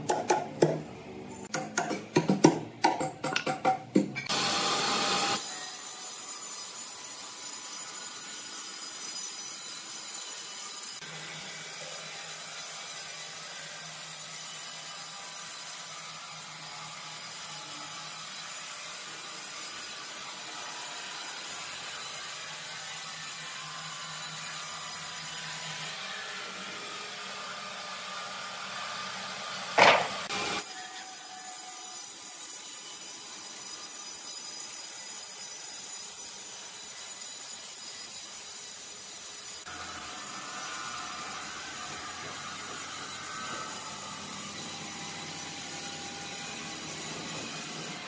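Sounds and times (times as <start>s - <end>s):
band saw cutting wood: 19.4s - 48.0s.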